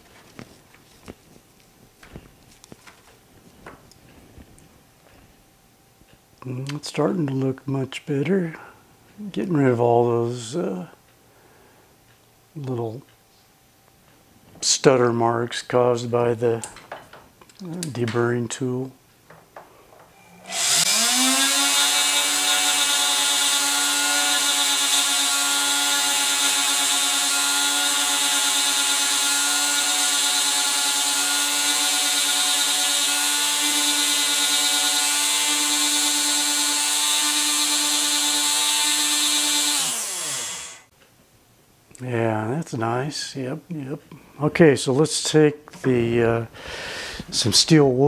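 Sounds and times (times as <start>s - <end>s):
power tool motor whining: 20.4s - 40.9s.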